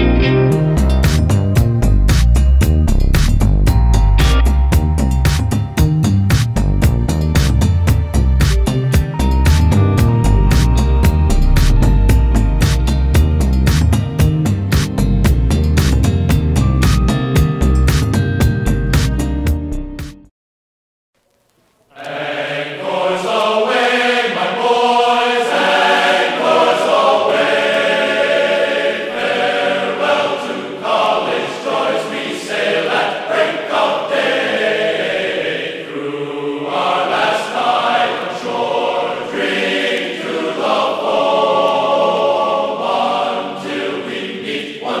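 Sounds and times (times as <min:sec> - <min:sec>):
choir singing long notes: 0:21.9 - 0:45.0.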